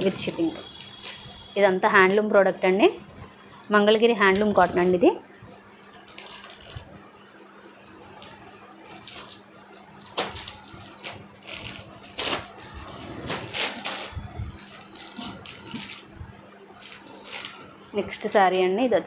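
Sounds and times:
fabric rustling: 0:08.1 - 0:16.2.

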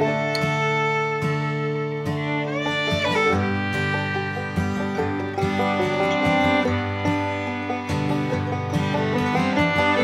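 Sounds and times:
fiddle over plucked strings: 0:00.0 - 0:10.0.

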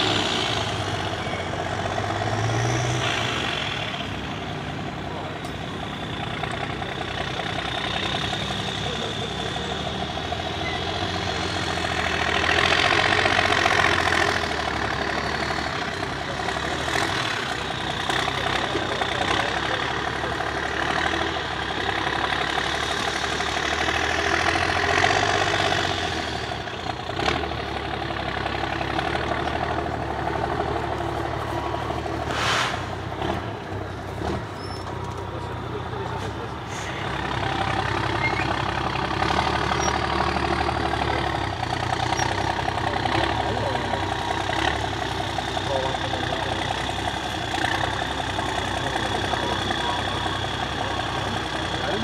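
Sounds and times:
truck diesel engine revving: 0:00.0 - 0:52.0.

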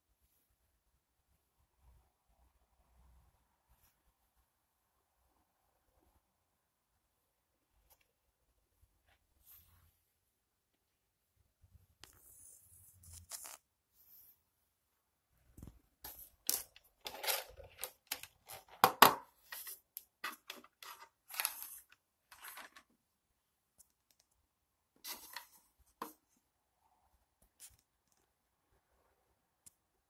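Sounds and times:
clock handled on stone countertop: 0:16.1 - 0:22.8.

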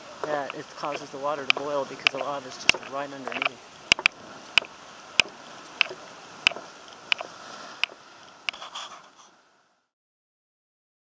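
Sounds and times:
footsteps on wooden boardwalk: 0:00.0 - 0:08.6
faint steady hiss: 0:00.0 - 0:09.9.

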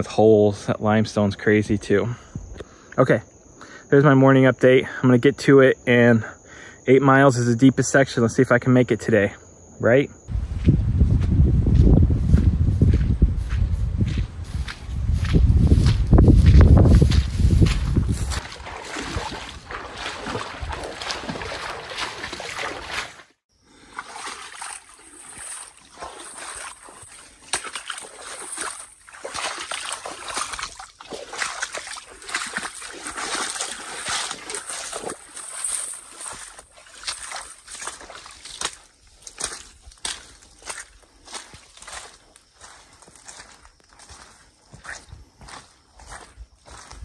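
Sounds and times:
footsteps through dry grass: 0:10.3 - 0:23.4, 0:24.0 - 0:47.0
footsteps splashing through water: 0:11.8 - 0:47.0.

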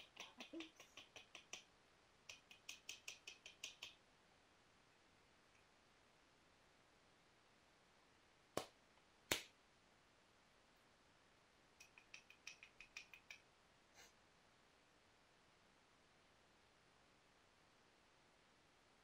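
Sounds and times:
light high ticks: 0:00.0 - 0:04.0, 0:11.8 - 0:14.1.

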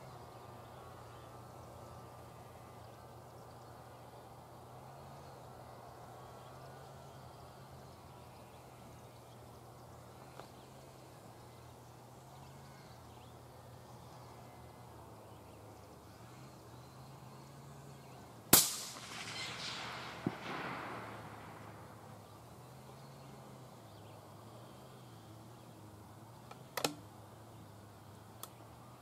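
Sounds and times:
low steady hum: 0:00.0 - 0:29.0
faint sharp crack: 0:18.5 - 0:21.8
rifle shot with rolling echo: 0:18.5 - 0:22.2.

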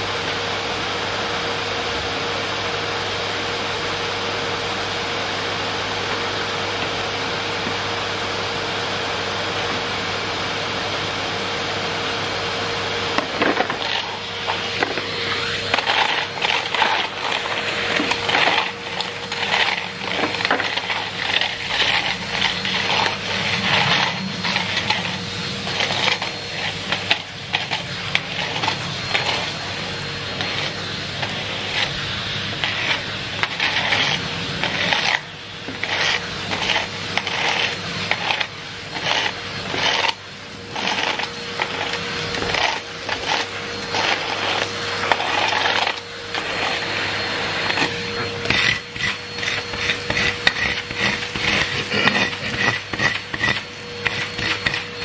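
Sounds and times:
vacuum cleaner humming: 0:00.0 - 0:55.0
grit clattering through vacuum hose: 0:13.1 - 0:55.0.

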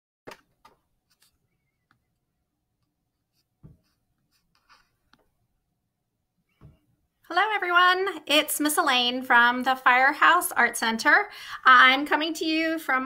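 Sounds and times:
soft thump: 0:03.6 - 0:03.9.

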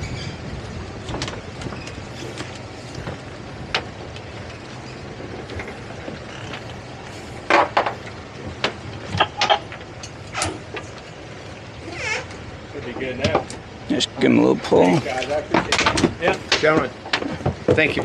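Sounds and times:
outboard engines idling: 0:00.0 - 0:18.0.

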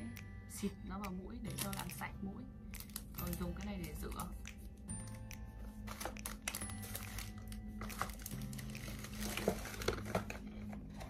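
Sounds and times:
soft background music: 0:00.0 - 0:11.0
plastic packaging crinkling: 0:01.5 - 0:02.0, 0:02.8 - 0:04.3, 0:05.7 - 0:11.0.

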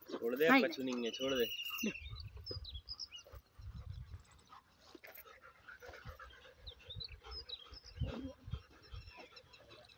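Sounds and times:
dogs panting: 0:00.0 - 0:09.9
small birds chirping: 0:00.0 - 0:09.9.

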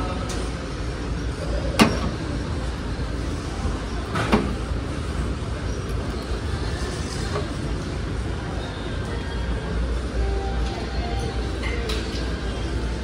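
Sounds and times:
store background rumble: 0:00.0 - 0:13.0.

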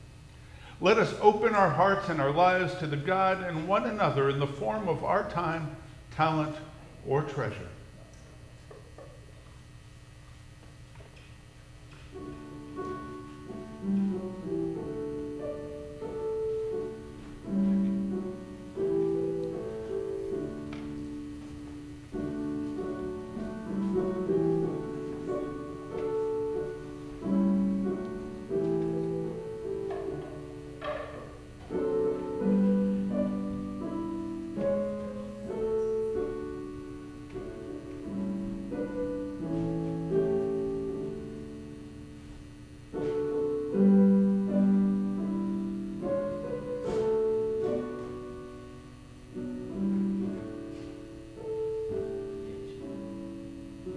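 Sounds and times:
slow solo piano piece: 0:12.1 - 0:53.9.

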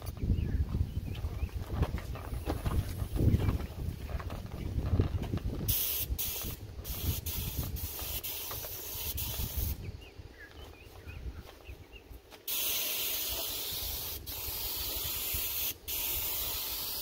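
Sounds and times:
spray gun hissing: 0:05.7 - 0:09.8, 0:12.4 - 0:17.0.

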